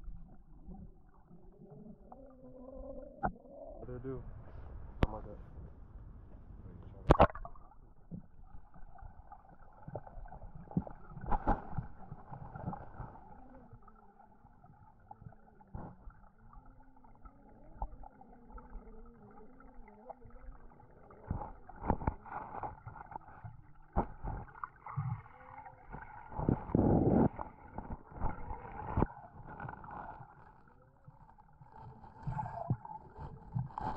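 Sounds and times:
faint wavering hum: 0.0 - 33.9
muffled underwater sound: 0.0 - 33.9
underwater knocks and bumps: 6.8 - 13.4, 19.5 - 33.9
camera splashing into water: 7.0 - 7.6.

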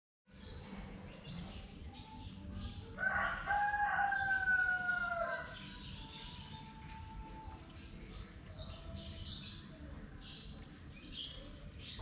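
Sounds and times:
faint small birds chirping: 0.3 - 4.3, 5.0 - 12.0
rooster crowing: 3.0 - 5.6.

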